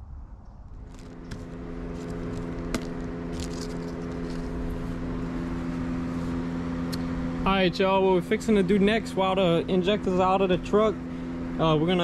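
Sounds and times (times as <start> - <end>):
machine humming: 0.6 - 12.0
handling clicks and clatters: 0.9 - 4.6.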